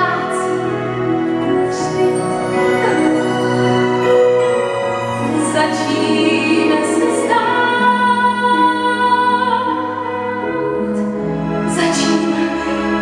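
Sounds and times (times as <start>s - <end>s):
woman singing: 0.0s - 0.9s, 5.2s - 13.0s
instrumental accompaniment: 0.0s - 13.0s.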